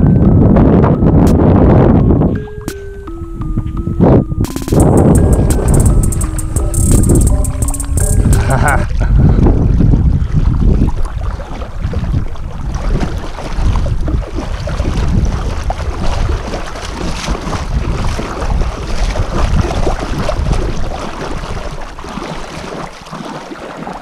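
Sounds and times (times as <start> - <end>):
wind rumbling on microphone: 0.0 - 22.9
water splashing and lapping: 4.8 - 24.0.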